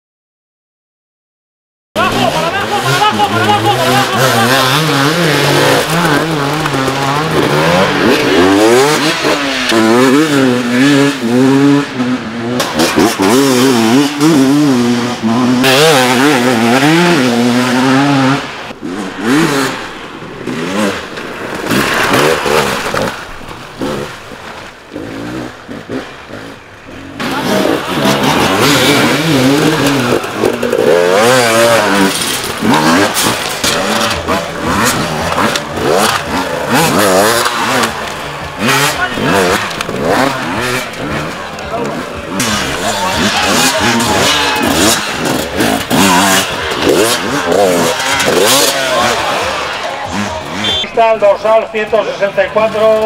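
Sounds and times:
dirt bike engines revving: 0:02.0 - 0:53.0.

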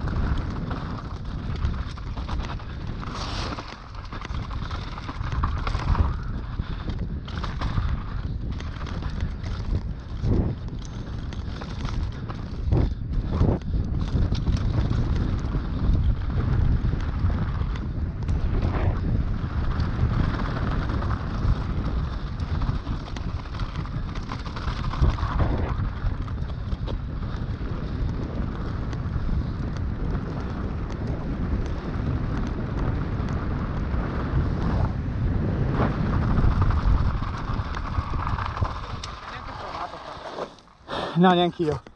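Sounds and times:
bike tyres crunching on gravel: 0:00.0 - 0:41.9
wind buffeting microphone: 0:00.0 - 0:41.9.

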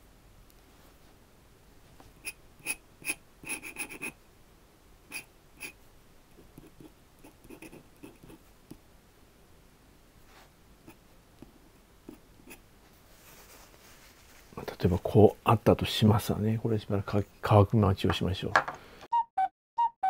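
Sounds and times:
pen nib scratching paper: 0:02.2 - 0:04.2, 0:05.1 - 0:05.8, 0:06.4 - 0:08.8, 0:10.8 - 0:12.6.

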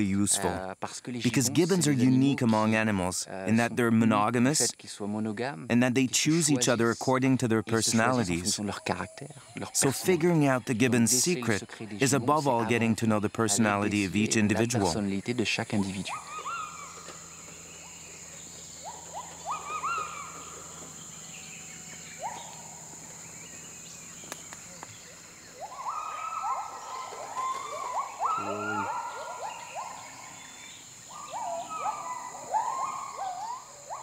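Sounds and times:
high-pitched drone: 0:12.0 - 0:30.6
gibbons whooping: 0:15.6 - 0:23.8, 0:24.4 - 0:34.0.

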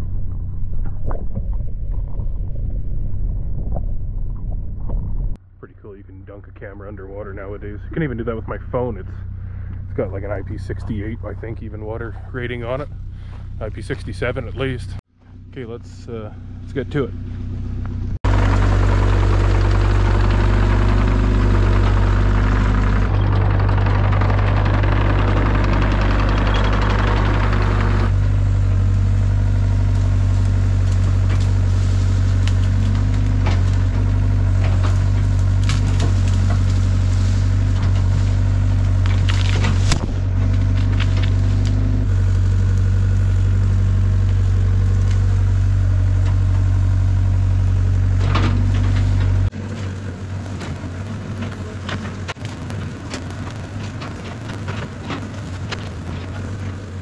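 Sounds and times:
diesel engine running: 0:00.0 - 0:57.0
sharp cracks and snaps: 0:29.8 - 0:43.2, 0:48.2 - 0:57.0.

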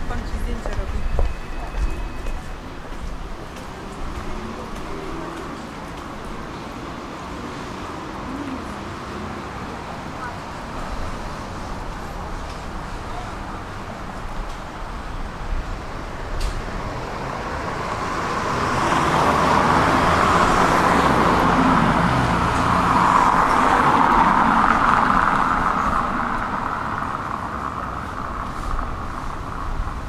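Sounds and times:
car driving past: 0:16.7 - 0:29.6.

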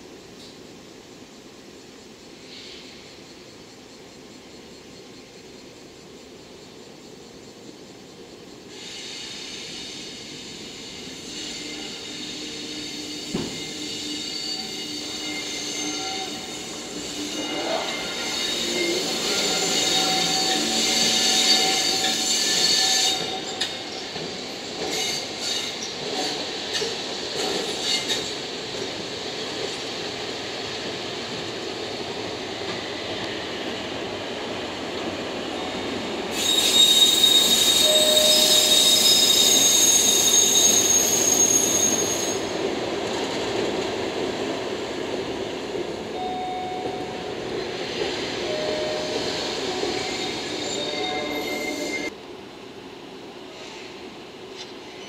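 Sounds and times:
train wheels squealing on curve: 0:08.6 - 0:44.1, 0:46.2 - 0:52.2.

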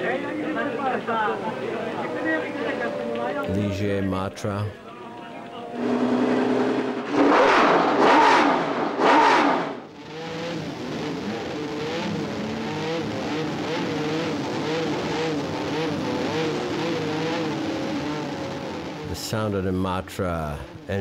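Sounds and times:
engine running unevenly at low revs: 0:04.8 - 0:19.7
racing car engine revving: 0:05.4 - 0:21.0.

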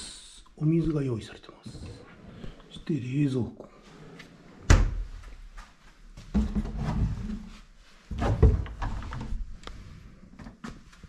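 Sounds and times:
wooden closet door opening: 0:04.5 - 0:05.2, 0:08.1 - 0:09.4.

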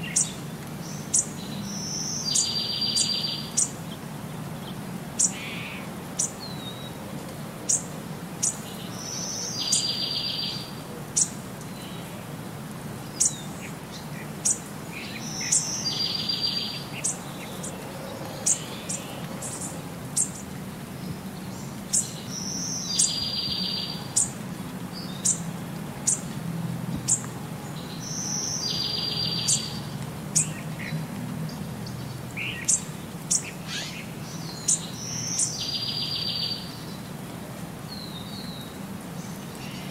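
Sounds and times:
bird chirping: 0:00.0 - 0:03.7, 0:07.7 - 0:12.1, 0:13.2 - 0:24.4, 0:27.1 - 0:30.9, 0:31.5 - 0:37.0.

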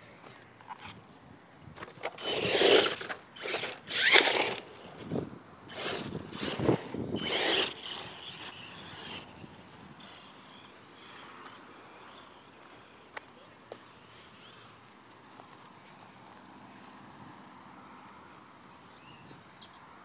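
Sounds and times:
electric toy truck motor whirring: 0:01.8 - 0:12.7, 0:14.3 - 0:14.8
tyres scraping over dirt: 0:01.8 - 0:12.7.

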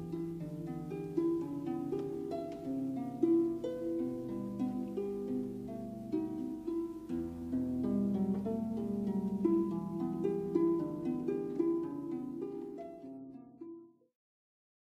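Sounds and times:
plucked string melody: 0:00.0 - 0:14.0.

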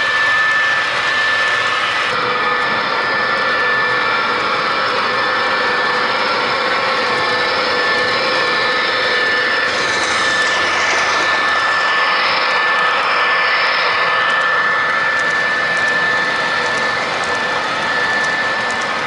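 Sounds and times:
diesel engine sound with high whine: 0:00.0 - 0:19.0
model train cars rolling on track: 0:05.9 - 0:19.0.

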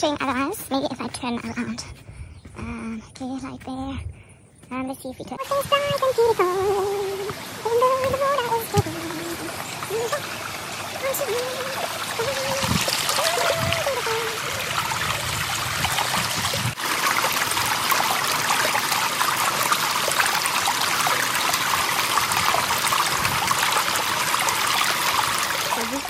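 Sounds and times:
stream trickling: 0:05.2 - 0:26.0.

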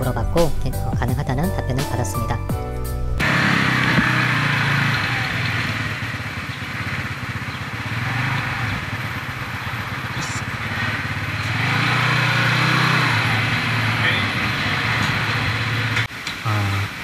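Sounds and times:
scooter engine running slowly: 0:03.2 - 0:16.1.

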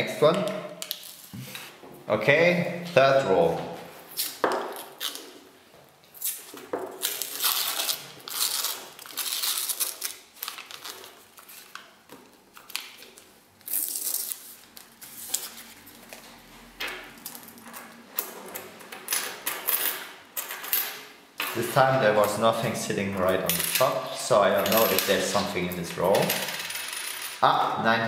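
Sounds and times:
paper wrapper tearing and crinkling: 0:06.2 - 0:16.0
coins clinking: 0:19.0 - 0:22.4, 0:23.2 - 0:27.4.

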